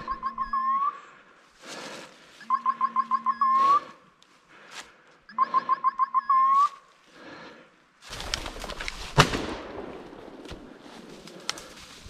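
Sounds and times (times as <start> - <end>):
beeper collar beeps: 0.0 - 1.0, 2.4 - 4.0, 5.3 - 6.8
shotgun shot: 9.1 - 10.6
rustling through leaves and brush: 10.5 - 12.0.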